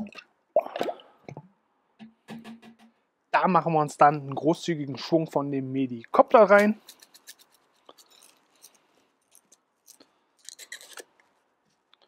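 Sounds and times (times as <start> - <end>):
spice shaker rattling: 6.8 - 11.0.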